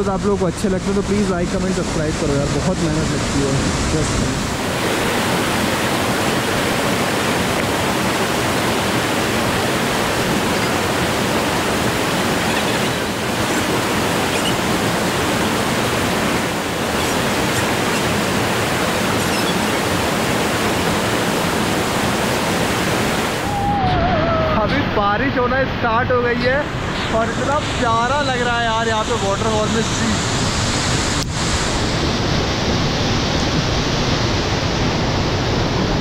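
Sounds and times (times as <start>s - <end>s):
waterfall roaring: 0.0s - 36.0s.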